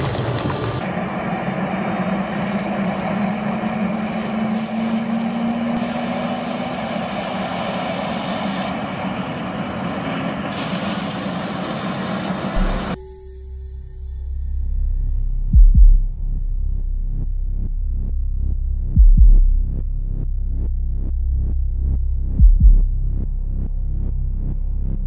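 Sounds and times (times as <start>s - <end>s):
jet engine running: 0.0s - 13.0s.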